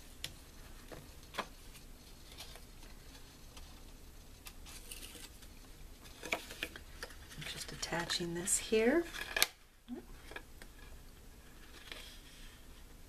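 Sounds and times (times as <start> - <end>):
paper rustling: 0.3 - 8.2, 10.7 - 12.9.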